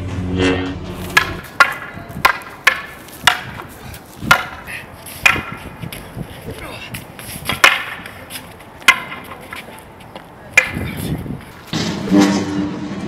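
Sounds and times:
music: 0:00.0 - 0:01.2
wooden staffs clacking: 0:01.0 - 0:06.1, 0:06.9 - 0:11.8.

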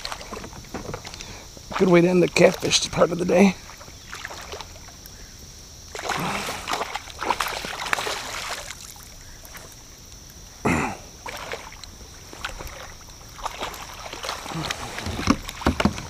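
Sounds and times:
fish splashing at water surface: 0:03.6 - 0:05.0, 0:05.9 - 0:09.8, 0:11.2 - 0:16.0.

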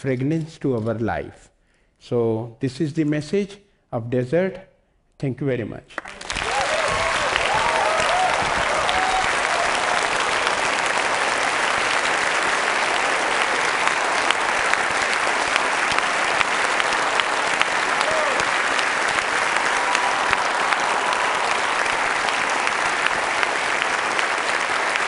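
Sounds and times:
audience applauding: 0:06.0 - 0:25.0.

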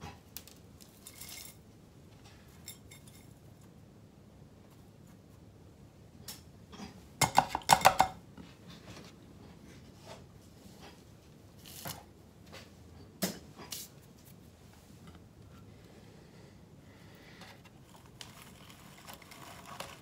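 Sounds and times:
hand tools and ceramic pot clinking: 0:00.8 - 0:01.6, 0:02.2 - 0:03.4.

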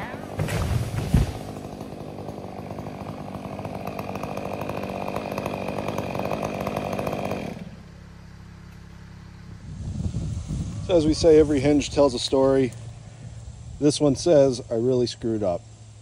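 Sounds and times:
chainsaw running: 0:00.0 - 0:08.0
tree trunk thudding on ground: 0:00.3 - 0:01.6
low engine hum: 0:06.6 - 0:16.0.

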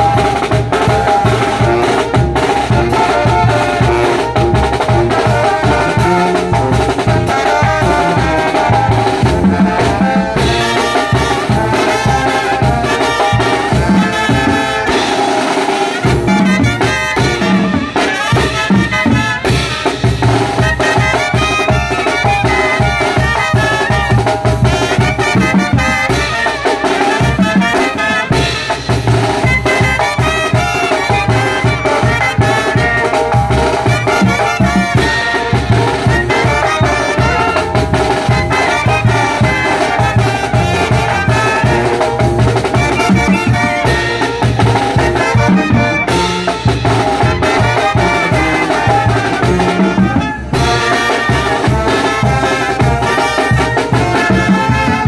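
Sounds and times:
bass drum beat: 0:00.0 - 0:15.4, 0:27.1 - 0:55.0
sousaphone bass line: 0:00.0 - 0:26.5, 0:27.1 - 0:55.0
brass band playing: 0:00.0 - 0:55.0
trumpets and trombones melody: 0:00.0 - 0:55.0.

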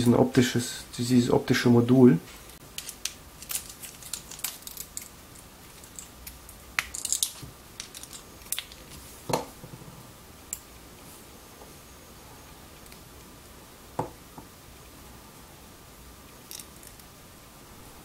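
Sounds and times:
clicks and scrapes of parts handled: 0:02.5 - 0:09.0.

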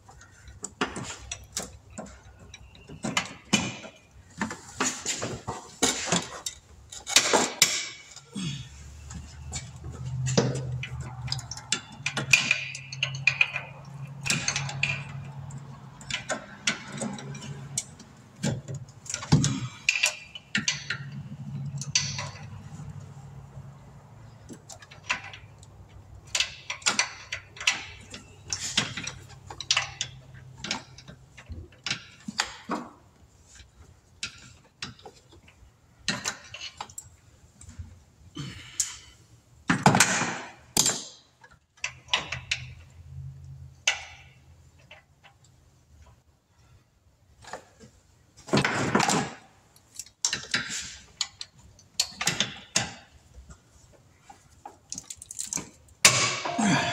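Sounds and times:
metal tools clinking on engine: 0:00.0 - 0:23.3, 0:24.1 - 0:37.8.

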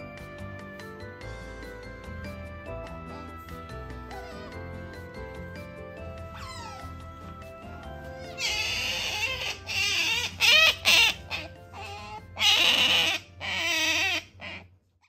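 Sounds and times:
background music: 0:00.0 - 0:14.8
otter squealing calls: 0:06.3 - 0:07.0, 0:08.2 - 0:14.7.

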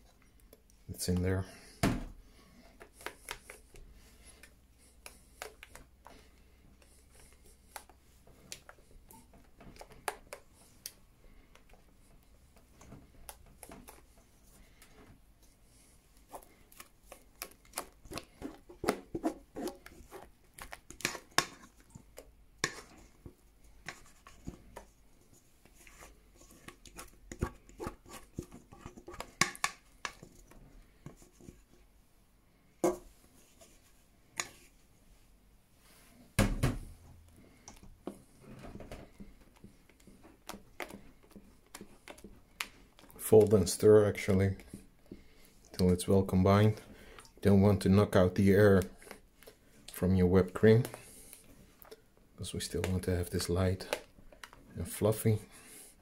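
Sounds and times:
spatula scraping metal bowl: 0:18.1 - 0:24.6.

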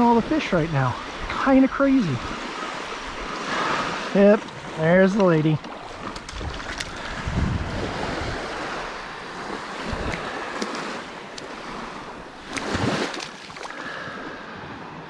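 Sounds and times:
surf waves washing over sand: 0:00.0 - 0:15.0
wind buffeting microphone: 0:05.8 - 0:13.2.

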